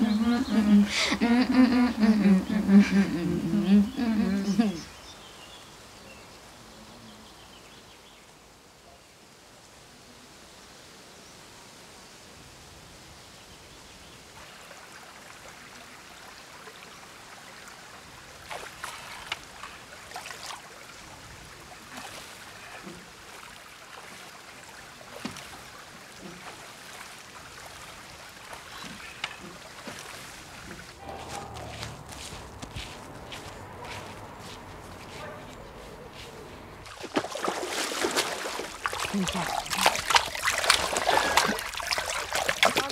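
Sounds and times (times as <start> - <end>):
water splashing and trickling: 14.1 - 42.9.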